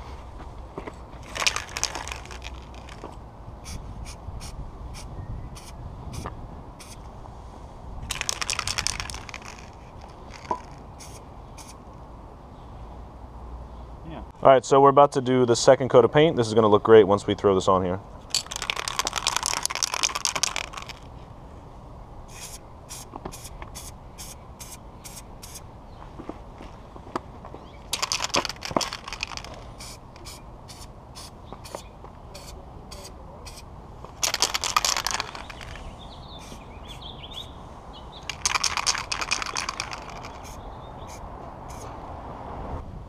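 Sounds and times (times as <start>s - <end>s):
spray paint hissing bursts: 3.6s - 7.0s, 10.2s - 11.8s, 22.3s - 25.6s, 28.5s - 33.6s, 36.4s - 37.5s, 38.4s - 41.9s
faint bird chirps: 35.4s - 38.3s.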